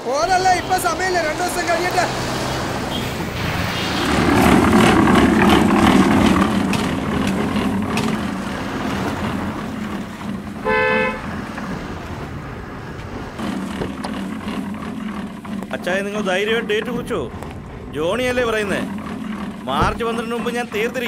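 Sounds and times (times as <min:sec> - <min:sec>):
motorcycle and truck engines: 0:00.0 - 0:21.0
vehicles passing on road: 0:00.0 - 0:21.0
short horn toot: 0:10.6 - 0:11.3.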